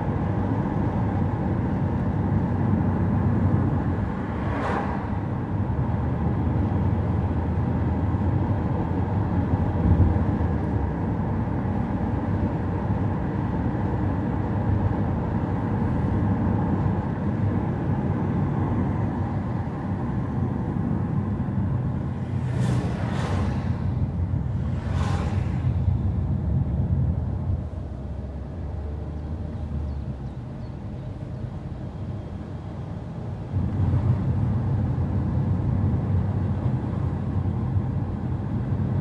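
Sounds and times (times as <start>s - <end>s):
car engine and tyre noise: 0.0s - 39.0s
brief whoosh: 22.4s - 26.0s.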